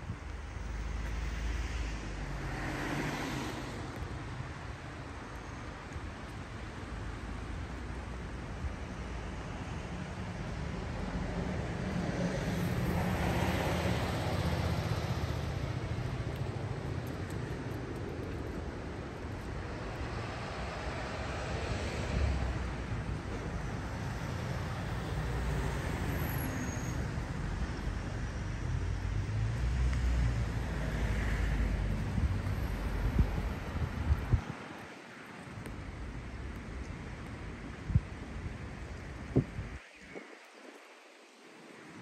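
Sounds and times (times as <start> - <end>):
cars passing: 0.0 - 5.2, 9.9 - 37.7
low traffic rumble: 0.0 - 40.2.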